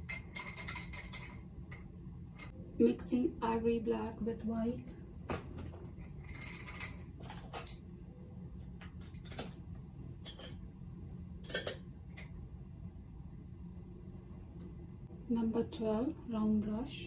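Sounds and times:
painting tools clinking and tapping: 0.0 - 1.8, 10.2 - 10.6, 11.4 - 12.3.

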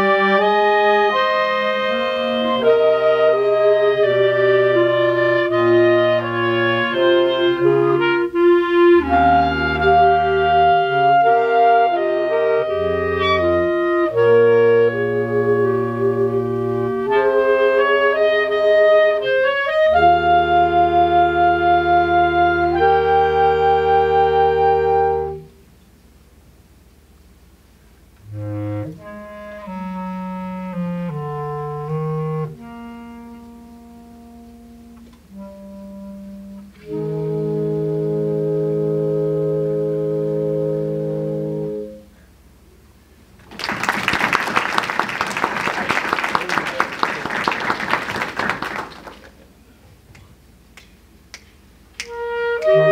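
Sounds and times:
clarinet choir playing: 0.0 - 25.6, 28.2 - 42.4, 52.0 - 52.9.

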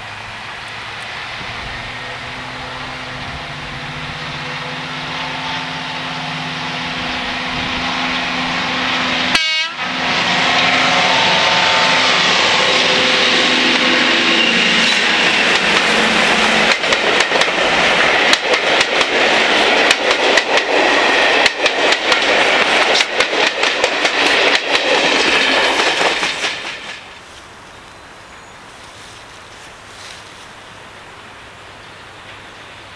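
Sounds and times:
diesel locomotive engine drone: 0.0 - 32.9
train wheels clattering over rail joints: 12.2 - 27.2.

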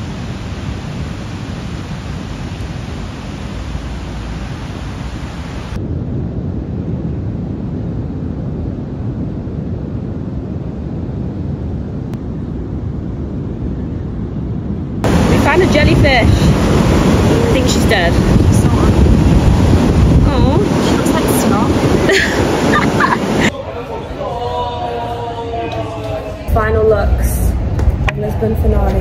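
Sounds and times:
ocean surf breaking: 0.0 - 6.3, 14.7 - 28.7
low rumble: 0.0 - 29.0
wind on microphone: 0.0 - 29.0.

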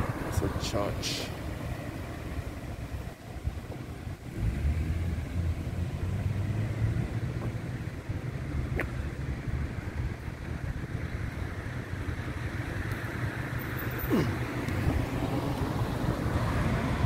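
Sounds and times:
street background noise: 0.0 - 17.0
wind buffeting microphone: 14.4 - 17.0.

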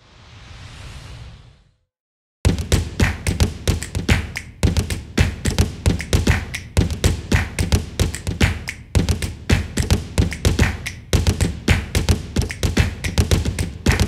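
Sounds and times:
percussive taps and thumps: 2.5 - 14.0.

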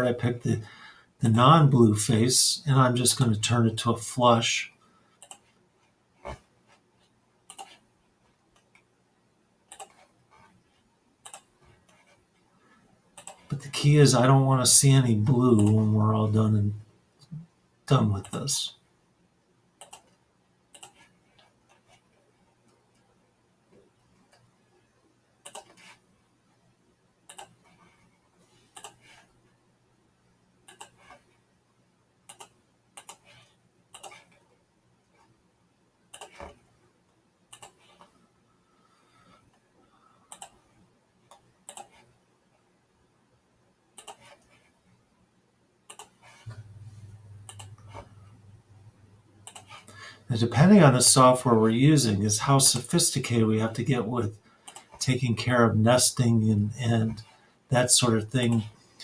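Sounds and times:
faint low hum: 0.0 - 59.0
computer mouse clicking: 5.2 - 5.5, 7.5 - 7.8, 9.7 - 10.5, 11.2 - 12.2, 13.2 - 13.6, 15.6 - 15.8, 19.8 - 22.0, 25.4 - 26.0, 27.3 - 28.0, 28.7 - 29.3, 30.7 - 31.2, 32.3 - 34.4, 36.1 - 36.6, 37.5 - 38.1, 40.3 - 40.6, 41.3 - 42.1, 44.0 - 44.7, 45.9 - 48.4, 49.4 - 50.0, 54.6 - 55.0
faint computer mouse clicks: 7.5 - 7.8, 11.2 - 12.1, 19.8 - 21.1, 27.3 - 27.8, 32.3 - 34.3, 40.3 - 40.6, 41.3 - 42.1, 45.9 - 46.8, 47.4 - 48.1, 49.4 - 49.9.

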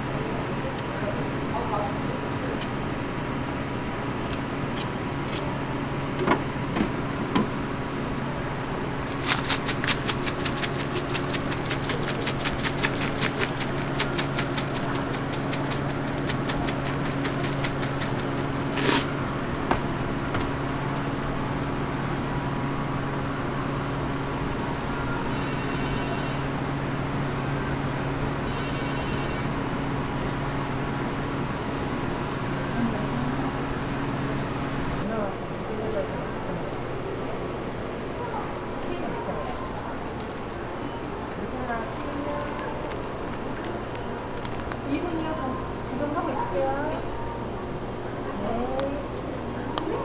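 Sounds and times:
electrical hum: 0.0 - 50.0
cereal crackling crumbled by hand: 9.1 - 19.0.

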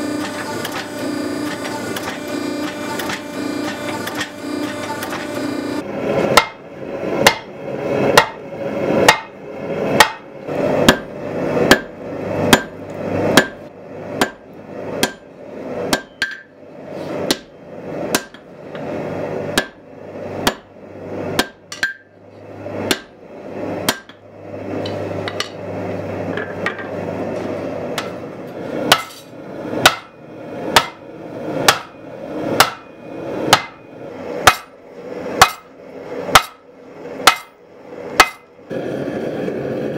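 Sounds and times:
hammer striking hot steel on anvil: 0.2 - 5.4, 6.3 - 6.6, 7.2 - 7.5, 8.2 - 8.4, 9.0 - 9.4, 10.0 - 16.5, 17.2 - 18.9, 19.5 - 19.8, 20.4 - 20.7, 21.3 - 22.2, 22.8 - 23.2, 23.8 - 24.2, 28.0 - 28.2, 28.9 - 31.0, 31.6 - 32.9, 33.5 - 33.8, 34.4 - 34.8, 35.4 - 35.7, 36.3 - 37.6, 38.2 - 38.5.

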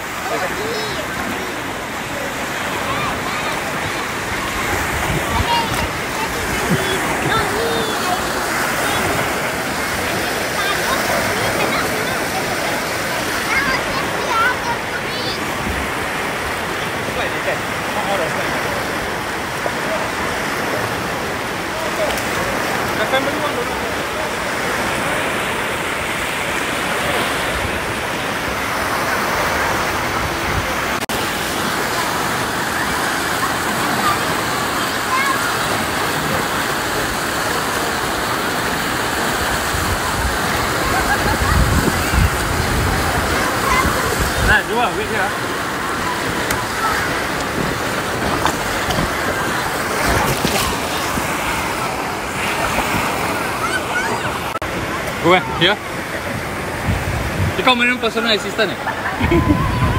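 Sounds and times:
water rushing and breaking: 0.0 - 59.9.

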